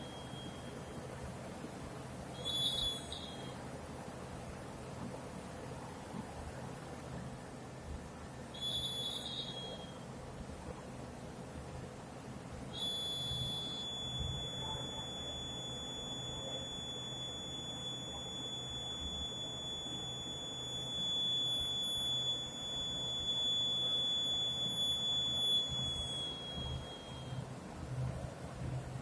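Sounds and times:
high-pitched electronic buzzer: 0:02.4 - 0:03.6, 0:08.6 - 0:10.0, 0:12.8 - 0:27.4.

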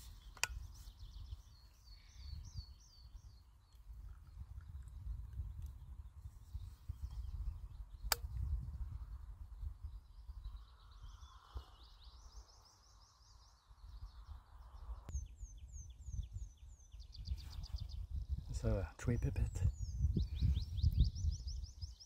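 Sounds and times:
bird singing trills: 0:00.0 - 0:22.0
sharp click: 0:08.1 - 0:08.4.

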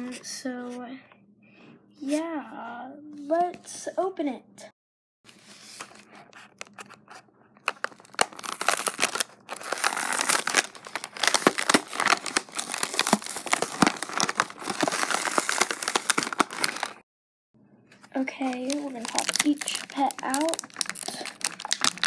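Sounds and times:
packaging crinkling and tearing: 0:05.8 - 0:17.0, 0:18.2 - 0:22.0.

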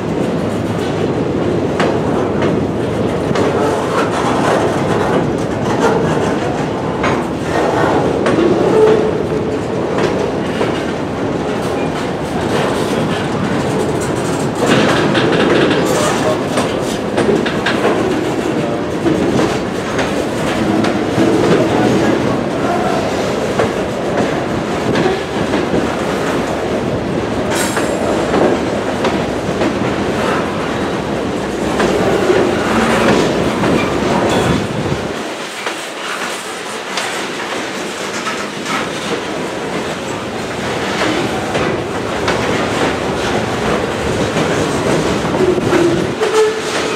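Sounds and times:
train wheels rumbling on rails: 0:00.0 - 0:46.9
wheels clicking over rail joints: 0:00.0 - 0:46.9.

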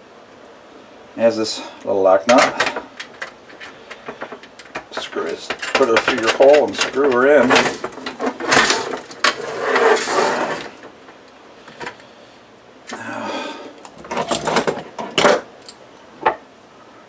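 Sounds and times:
metal parts rustling and scraping: 0:02.2 - 0:12.0, 0:13.9 - 0:15.8
sharp clicks and knocks: 0:02.3 - 0:09.4.

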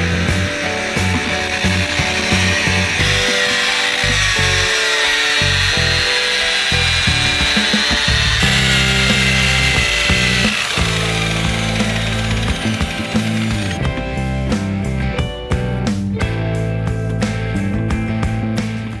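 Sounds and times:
electric polisher motor whining: 0:00.0 - 0:13.9
background music with bass line: 0:00.0 - 0:19.0.

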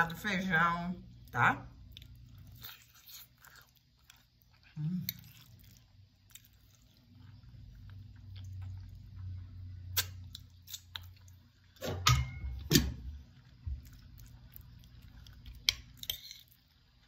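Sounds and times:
person chewing food: 0:01.8 - 0:11.8, 0:12.6 - 0:17.0.

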